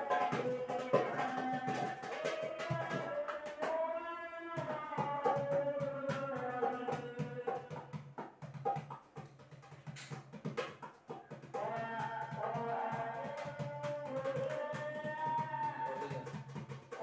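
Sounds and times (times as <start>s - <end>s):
steady drum beat: 4.7s - 17.0s.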